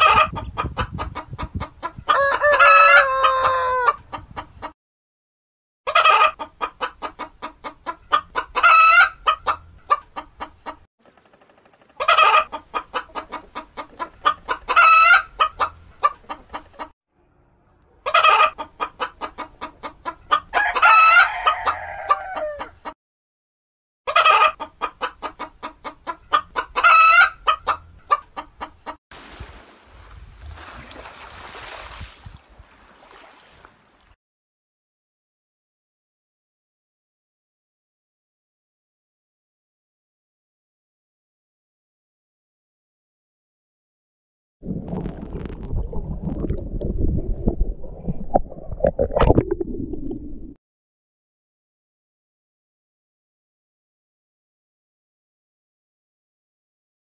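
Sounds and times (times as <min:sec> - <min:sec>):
chickens clucking: 0:00.0 - 0:04.8, 0:05.9 - 0:16.9, 0:17.9 - 0:23.0, 0:24.1 - 0:29.0
rooster crowing: 0:02.1 - 0:04.0, 0:20.5 - 0:22.8.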